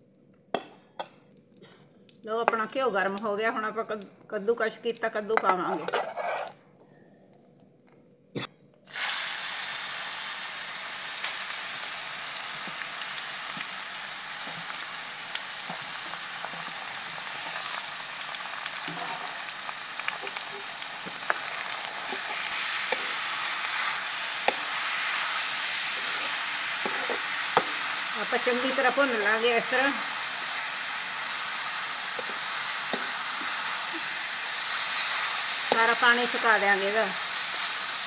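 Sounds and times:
ladle scraping pan: 5.7s - 6.6s
food sizzling in hot fat: 8.9s - 38.0s.

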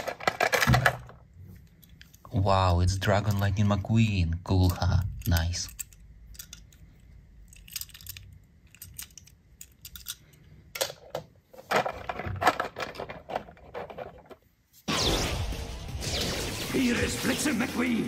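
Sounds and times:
toy cars clattering: 0.0s - 2.3s, 4.5s - 14.5s.

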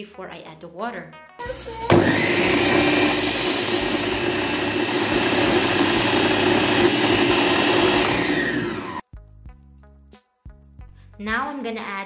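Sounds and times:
food processor motor running: 1.9s - 9.0s.

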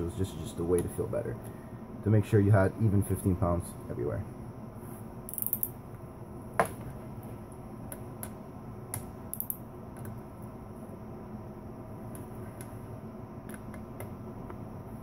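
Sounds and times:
torque wrench clicking: 5.3s - 5.7s, 9.3s - 9.6s.

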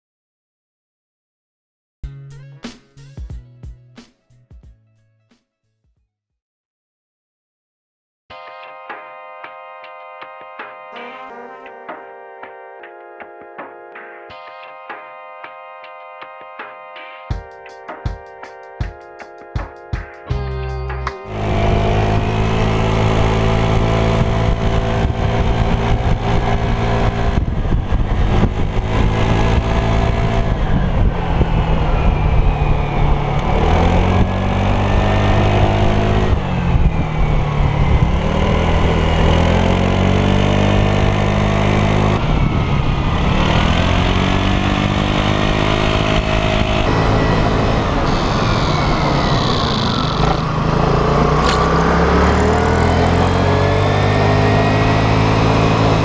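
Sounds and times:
scooter engine running: 20.3s - 56.0s.

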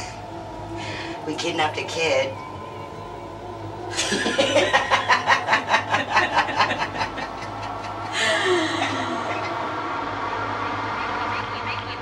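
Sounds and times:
low steady hum: 0.0s - 12.0s
woman laughing: 3.9s - 9.7s.

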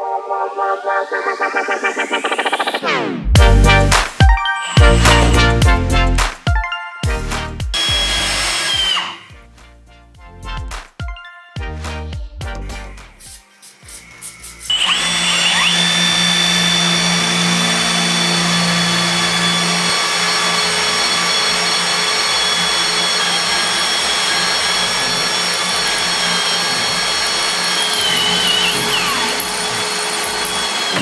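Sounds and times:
drill whining into steel: 4.5s - 5.7s, 7.8s - 9.4s, 13.7s - 31.0s.

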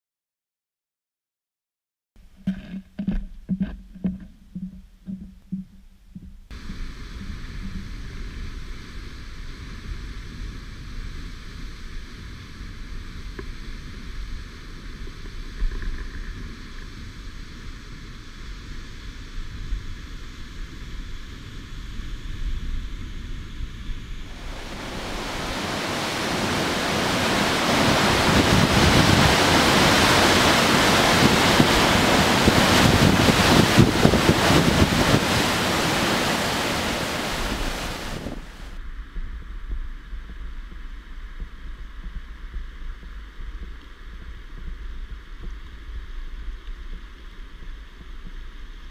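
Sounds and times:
soft rhythmic thuds: 2.4s - 8.0s, 39.1s - 48.9s
wind on microphone: 21.9s - 48.8s
waterfall roaring: 24.3s - 38.8s.

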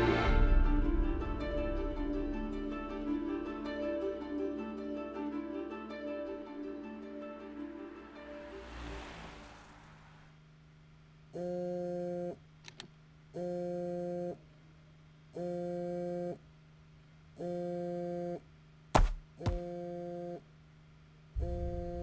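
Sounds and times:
sharp knocks: 18.9s - 19.7s.

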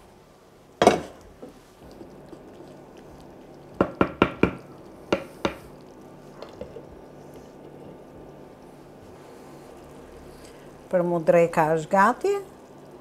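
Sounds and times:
wooden spoon knocking clay pot: 3.8s - 5.6s.

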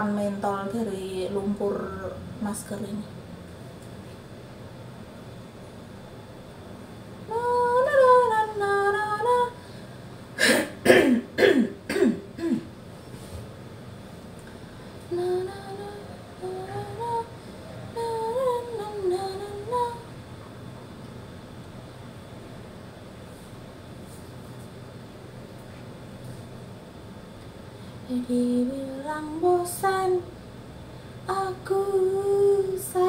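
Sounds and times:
woman coughing: 10.4s - 12.7s.

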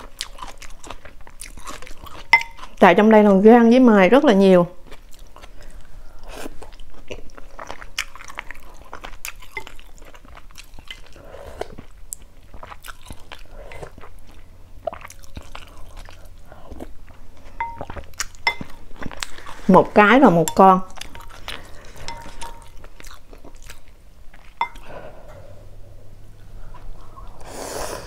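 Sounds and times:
wet chewing and smacks: 0.0s - 2.8s, 4.8s - 19.7s, 20.5s - 24.9s
chopsticks clinking on glass bowl: 2.2s - 2.6s, 17.6s - 18.8s, 20.4s - 21.4s, 22.0s - 22.8s, 24.6s - 24.8s.

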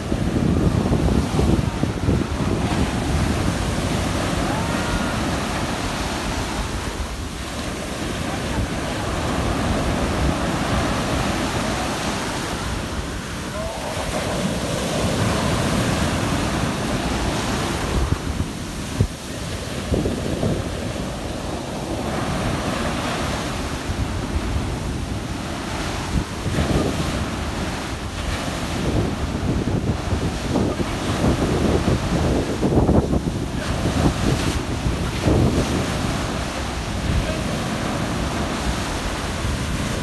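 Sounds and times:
foam rushing up the shore: 0.0s - 40.0s
waves breaking on a beach: 0.0s - 40.0s.

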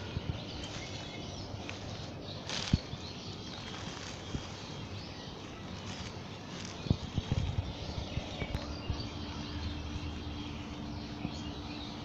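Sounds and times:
grass rustling: 0.0s - 9.3s.

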